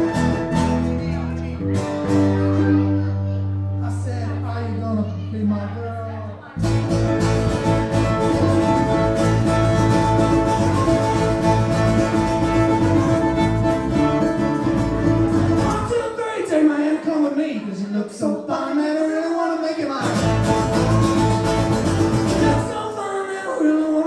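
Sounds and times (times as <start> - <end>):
fiddle: 0.0 - 5.5, 6.6 - 15.9
bass guitar: 0.0 - 16.0, 20.0 - 22.8
acoustic guitar: 0.0 - 24.0.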